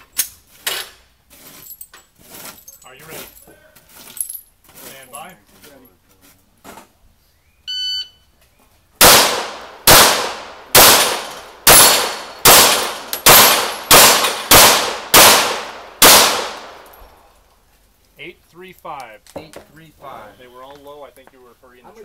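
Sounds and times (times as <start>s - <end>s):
shot timer beep: 7.7s - 8.2s
pistol shots echoing: 9.0s - 16.9s.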